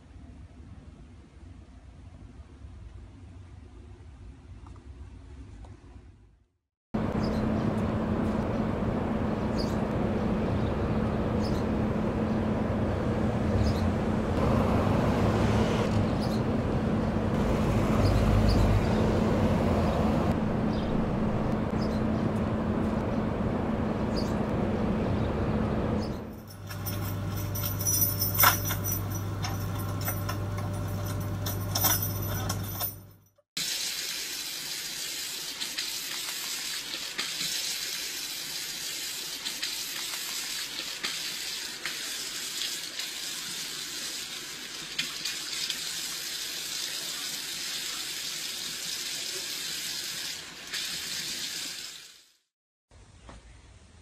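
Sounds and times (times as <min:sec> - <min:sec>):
car keys rattling in ignition: 0:26.3 - 0:33.3.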